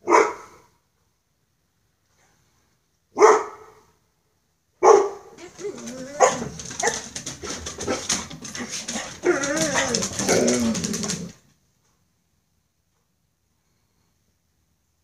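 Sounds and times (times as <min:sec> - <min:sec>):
dog whining and yelping: 0:05.4 - 0:11.3.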